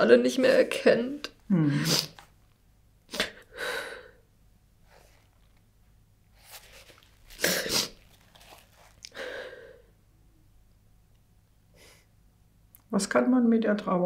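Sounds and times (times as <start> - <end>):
woman sniffling: 1.5 - 2.2, 3.1 - 4.2, 7.3 - 8.0, 9.1 - 9.9.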